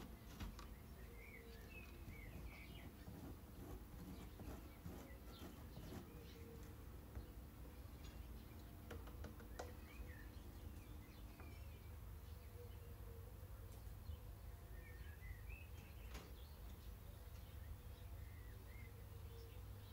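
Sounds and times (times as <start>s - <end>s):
faint bird chirps: 0.0s - 8.8s
low steady background rumble: 0.0s - 19.9s.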